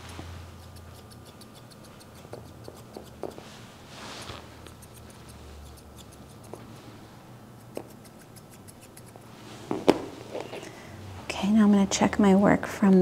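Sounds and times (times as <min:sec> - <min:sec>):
grooming shears snipping: 0:00.0 - 0:03.5, 0:04.2 - 0:06.7, 0:07.6 - 0:09.3.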